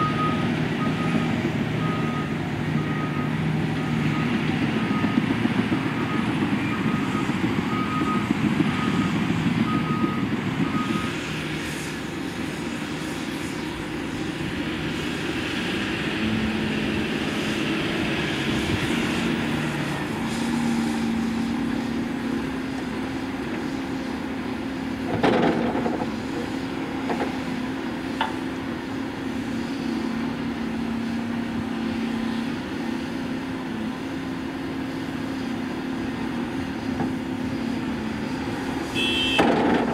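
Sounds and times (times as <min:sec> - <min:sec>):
reversing alarm beeping: 0:00.0 - 0:05.2, 0:05.8 - 0:11.2
diesel engines running: 0:00.0 - 0:39.9.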